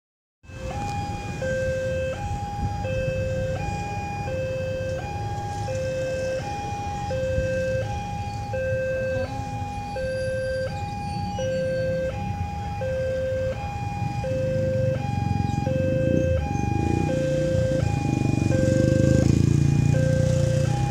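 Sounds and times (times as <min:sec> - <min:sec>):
two-tone crossing alarm: 0:00.4 - 0:20.9.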